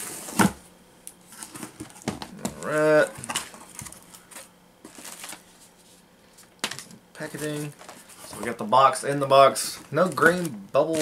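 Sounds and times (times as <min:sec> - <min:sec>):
person speaking: 0:02.4 - 0:03.2, 0:07.2 - 0:11.0.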